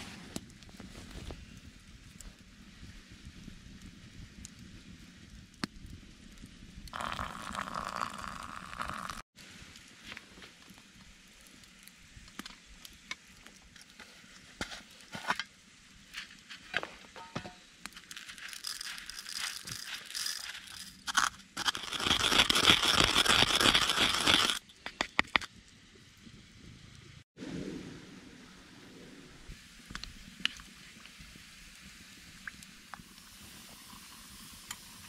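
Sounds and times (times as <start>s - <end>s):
light clicks and crackles: 9.6s - 15.5s
loud crinkling rustle: 18.0s - 24.6s.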